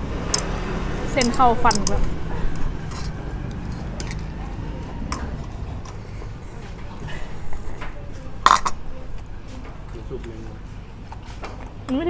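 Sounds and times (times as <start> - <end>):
utensils clinking against bowl: 1.1 - 9.3.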